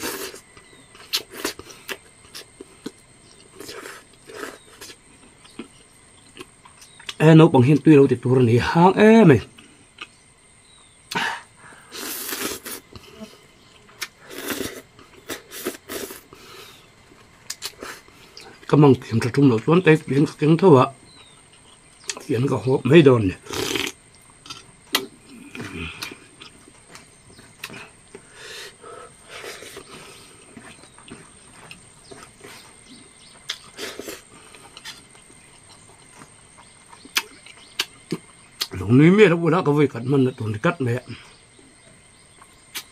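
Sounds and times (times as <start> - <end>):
noodles being slurped: 0.0 - 0.4, 11.9 - 12.8, 14.2 - 16.3, 23.4 - 24.6
man chewing with mouth smacks: 0.0 - 7.2, 9.5 - 11.2, 11.8 - 18.7, 21.1 - 22.3, 23.5 - 38.8, 41.2 - 42.9.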